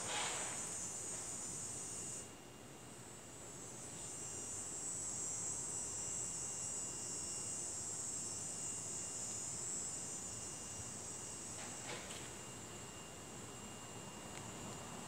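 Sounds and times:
insects buzzing: 3.4s - 15.0s.

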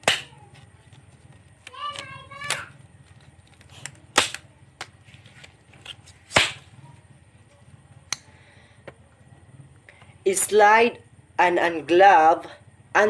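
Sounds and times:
faint clicks and rustles: 0.3s - 10.2s
rubber glove snapping: 3.5s - 5.0s, 5.8s - 6.6s.

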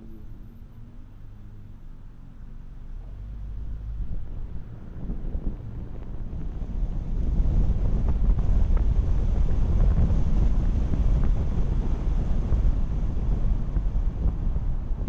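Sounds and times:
wind buffeting microphone: 3.0s - 15.0s.

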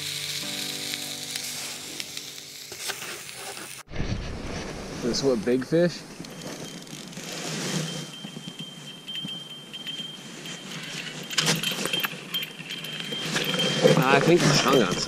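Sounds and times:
small bells jingling: 6.2s - 15.0s.

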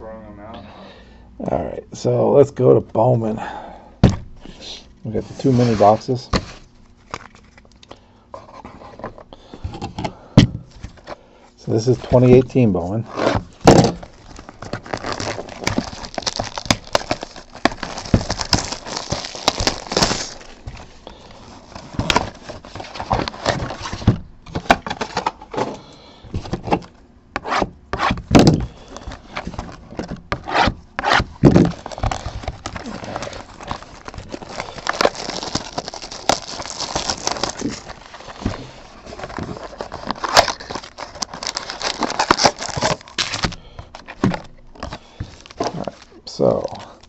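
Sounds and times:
plastic wrapping crinkling: 13.1s - 24.0s, 31.4s - 47.0s
cardboard box torn open: 13.2s - 20.5s, 30.5s - 38.0s, 39.3s - 43.6s.

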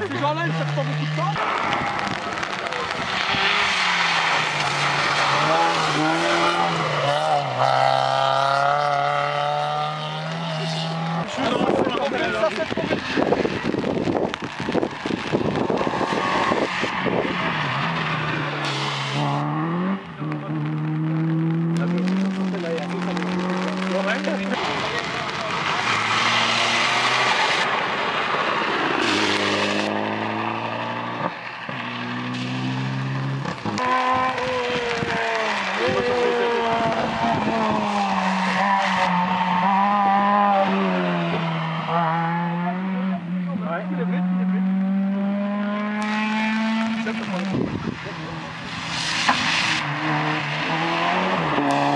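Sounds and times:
rally car engine accelerating: 0.0s - 51.9s
tyres hissing on wet road: 0.9s - 8.1s, 10.6s - 19.8s, 22.0s - 39.8s, 46.6s - 51.9s.

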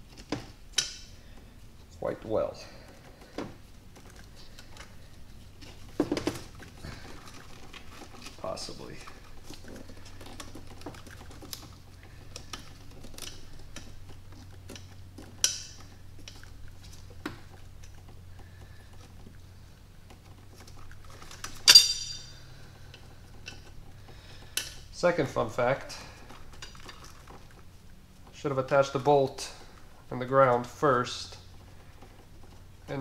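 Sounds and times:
metal parts clicking and tapping: 0.0s - 1.4s, 5.6s - 19.1s, 20.1s - 25.1s
low steady hum: 0.0s - 33.0s
ringing metal clink: 21.6s - 22.5s.

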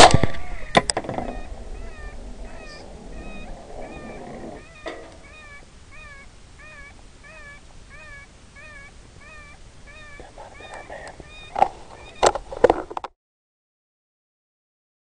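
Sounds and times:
animal mewing distress cry: 0.2s - 12.2s.

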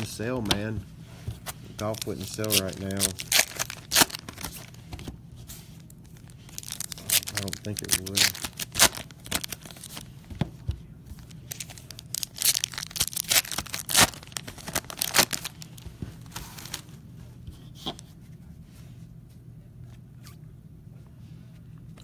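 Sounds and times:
wrapper tearing and crinkling: 1.8s - 4.8s, 6.1s - 10.1s, 11.3s - 16.9s.

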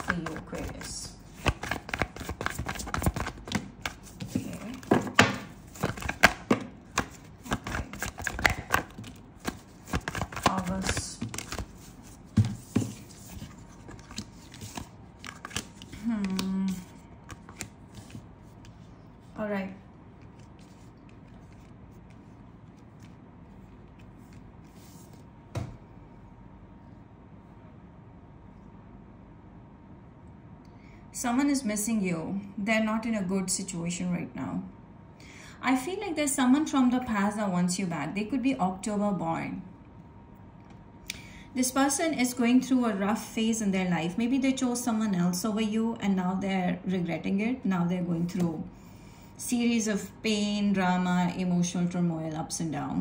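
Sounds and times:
cards rustling: 0.0s - 18.9s, 20.2s - 25.2s
cards clicking and slapping: 1.4s - 18.2s.

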